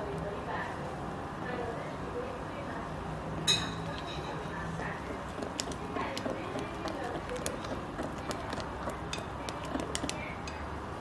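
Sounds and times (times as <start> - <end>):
wet dough churning: 3.8 - 11.0
spatula knocking glass bowl: 5.0 - 10.6.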